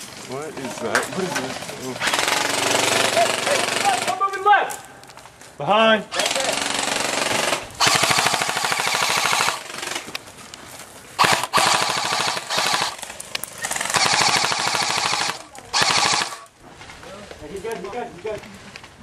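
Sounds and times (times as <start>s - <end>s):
airsoft rifle firing bursts: 2.0s - 4.2s, 6.2s - 10.1s, 11.2s - 16.5s.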